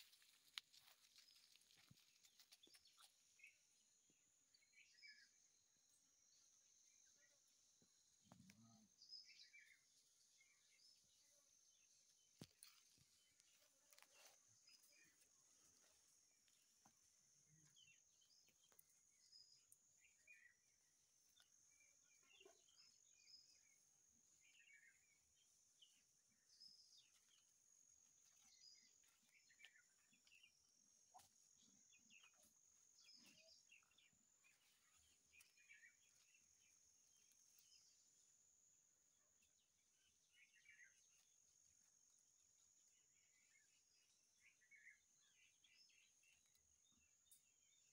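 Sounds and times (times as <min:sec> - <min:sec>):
bird chirps: 0:28.2 - 0:38.2.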